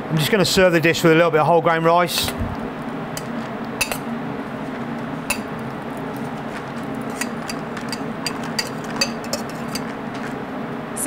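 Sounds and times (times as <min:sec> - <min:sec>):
steady low hum: 0:00.0 - 0:11.0
spoon scraping enamel bowl: 0:07.0 - 0:10.3.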